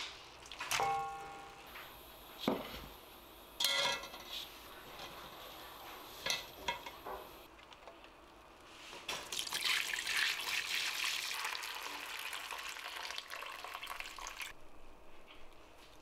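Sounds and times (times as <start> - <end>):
liquid pouring and splashing: 9.2 - 14.5.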